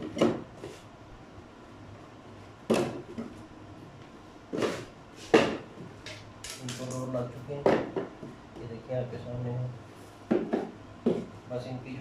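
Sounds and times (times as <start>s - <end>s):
wooden boxes knocking: 10.3s - 11.3s.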